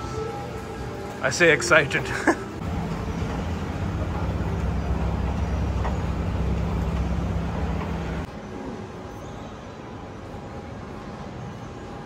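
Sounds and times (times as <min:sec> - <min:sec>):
escalator machinery humming: 0:00.0 - 0:12.0.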